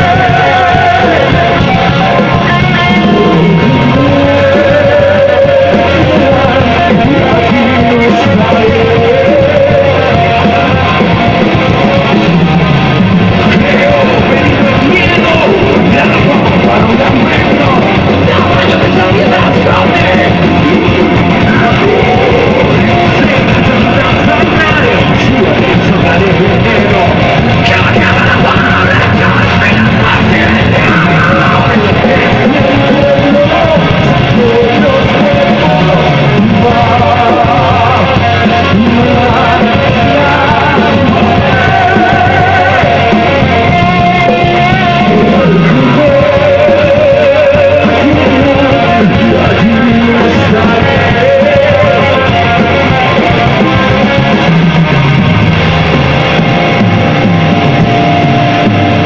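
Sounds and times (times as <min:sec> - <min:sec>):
bass guitar: 0:00.0 - 0:59.0
distorted electric guitars: 0:00.0 - 0:59.0
drums: 0:00.0 - 0:59.0
person singing: 0:00.0 - 0:59.0.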